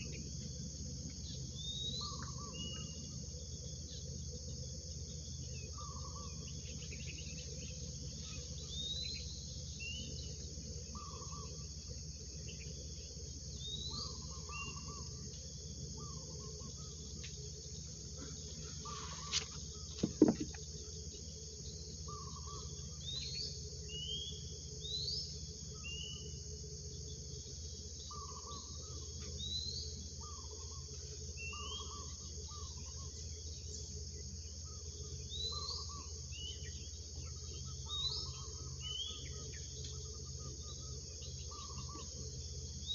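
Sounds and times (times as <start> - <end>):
insects chorus: 0.0 - 42.9
lower bird calls: 1.2 - 3.2, 5.4 - 26.4, 34.6 - 42.2.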